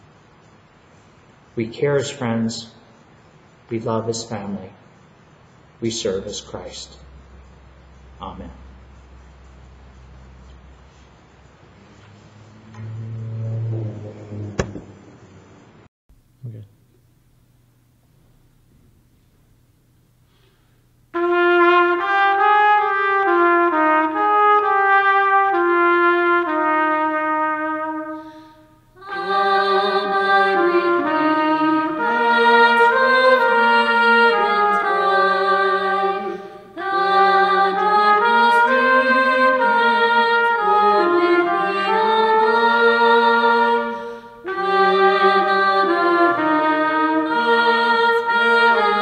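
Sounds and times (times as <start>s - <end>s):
flute playing: 12.0s - 14.8s, 21.2s - 49.0s
trumpet melody: 12.0s - 14.9s, 21.2s - 49.0s.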